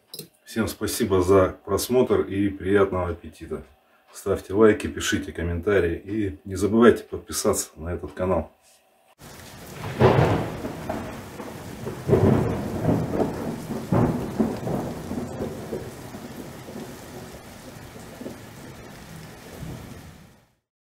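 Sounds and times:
steady rain: 9.2 - 20.6
thunder rumbling: 9.2 - 20.6.

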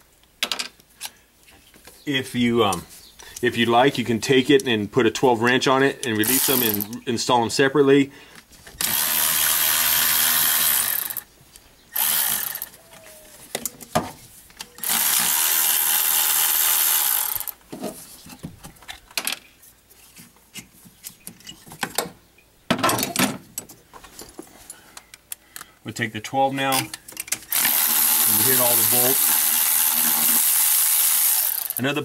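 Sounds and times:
cordless ratchet spinning bolts: 6.0 - 7.0, 8.8 - 11.2, 12.0 - 12.7, 14.8 - 17.6, 27.5 - 31.9.

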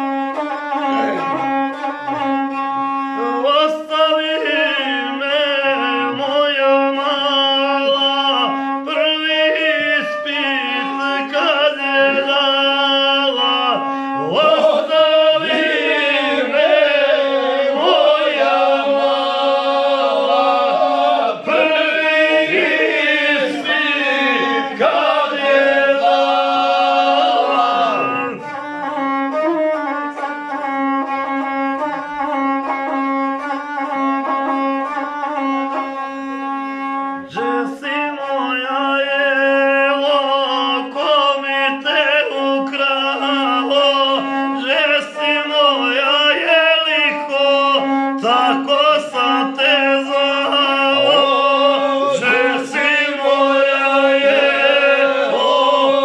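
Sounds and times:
low drone voice: 0.9 - 1.5
men singing a cappella: 9.4 - 28.4, 46.0 - 56.0.

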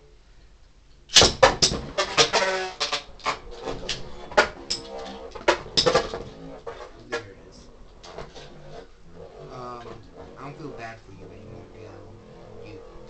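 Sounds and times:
spinning tops clicking and clashing: 3.8 - 6.2.

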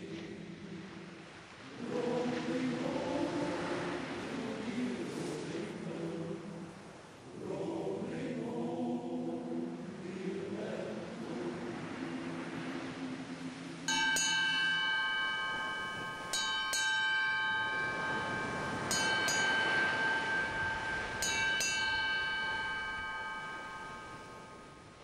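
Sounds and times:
ship's bell ringing: 13.8 - 25.0.

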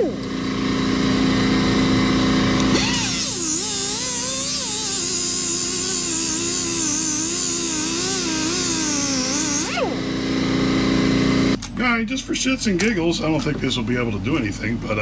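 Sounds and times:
die grinder whining on metal: 0.0 - 11.6.

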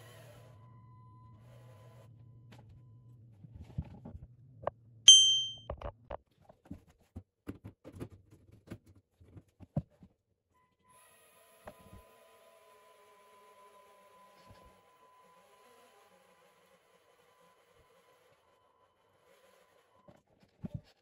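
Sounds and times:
bright chime: 5.1 - 5.6.

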